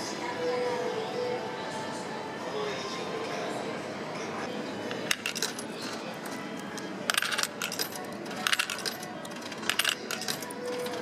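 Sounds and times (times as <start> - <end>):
coins clinking into vending machine: 4.9 - 11.0.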